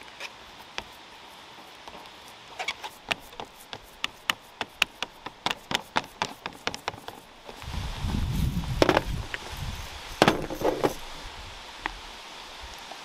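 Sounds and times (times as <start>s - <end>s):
hands patting raw meat: 3.0s - 7.2s.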